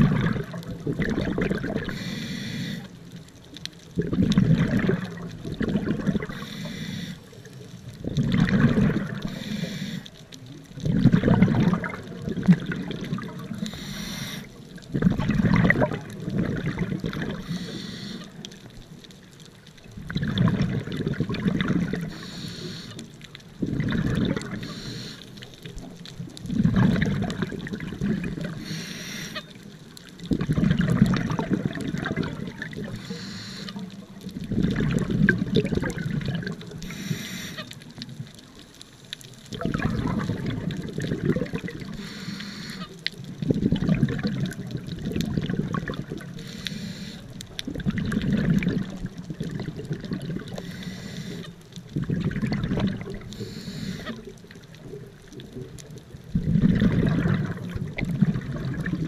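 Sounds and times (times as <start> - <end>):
exhaled bubbles burbling underwater: 0.0 - 59.0
regulator inhalation hiss: 1.9 - 2.9, 6.3 - 7.3, 9.3 - 10.1, 13.6 - 14.5, 17.4 - 18.3, 22.1 - 23.0, 24.6 - 25.4, 28.6 - 29.4, 33.0 - 33.8, 36.8 - 37.6, 42.0 - 42.9, 46.4 - 47.3, 50.6 - 51.4, 53.3 - 54.2.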